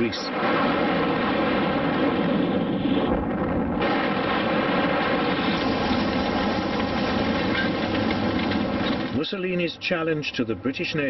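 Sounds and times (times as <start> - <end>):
aircraft engines droning: 5.0 - 11.0.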